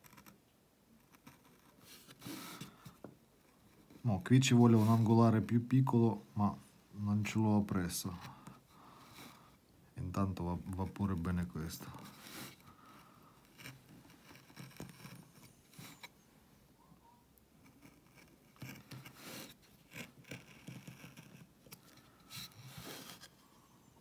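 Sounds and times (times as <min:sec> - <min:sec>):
gouge scraping through wood: 0:03.7 - 0:05.4, 0:10.8 - 0:16.2, 0:17.6 - 0:23.4.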